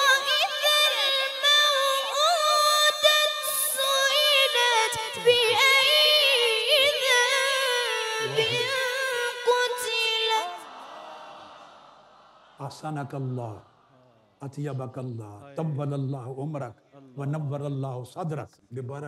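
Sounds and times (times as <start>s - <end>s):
boy reciting melismatic chant: 0.0s - 10.7s.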